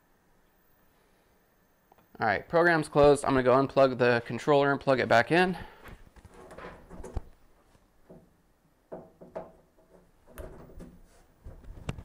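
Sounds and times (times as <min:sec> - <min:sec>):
hand knocking and rubbing: 0:08.9 - 0:12.0.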